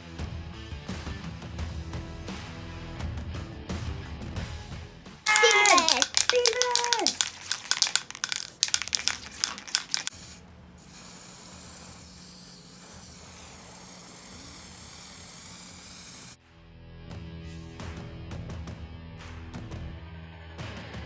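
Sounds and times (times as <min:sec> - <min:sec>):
rapid clattering clicks: 0:05.3 - 0:10.2
spray can hissing: 0:05.3 - 0:16.4.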